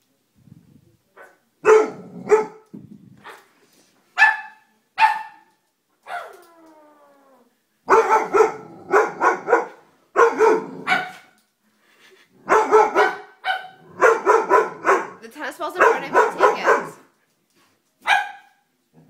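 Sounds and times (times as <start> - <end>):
dog barking: 1.2 - 2.6, 4.2 - 5.5, 6.1 - 6.3, 7.9 - 11.3, 12.5 - 15.2, 15.8 - 17.1, 18.0 - 18.6.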